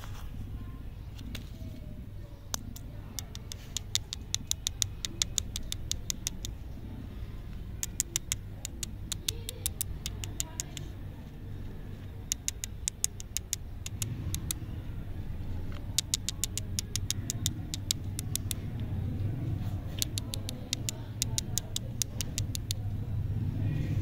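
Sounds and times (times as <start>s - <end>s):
steady low rumble: 1.8s - 24.0s
quick sharp clicks: 2.5s - 6.6s, 7.8s - 10.9s, 12.3s - 14.6s, 15.7s - 18.9s, 19.8s - 22.9s.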